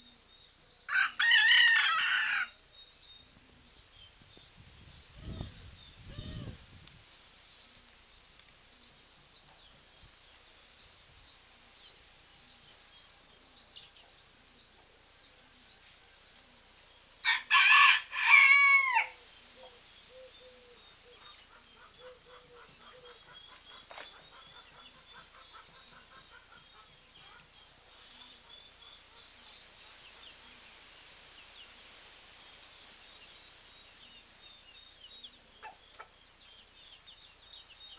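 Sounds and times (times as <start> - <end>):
hen crowing: 0.9 - 2.6, 17.2 - 19.2
soft hen clucks: 20.5 - 27.6.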